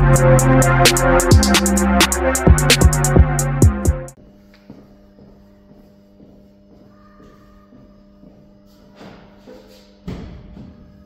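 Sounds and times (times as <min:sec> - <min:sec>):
music with low drone: 0:00.0 - 0:04.2.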